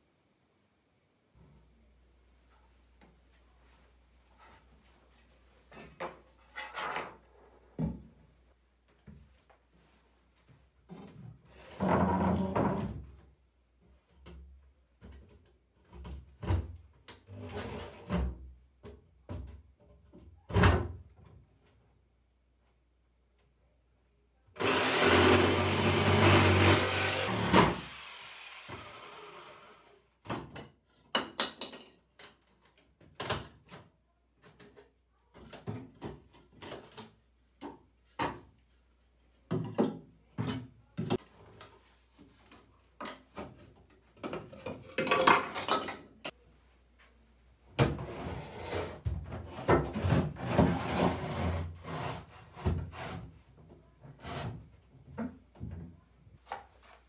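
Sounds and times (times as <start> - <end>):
small power tool running: 24.6 - 29.9
rubbing and scraping: 48.0 - 53.5.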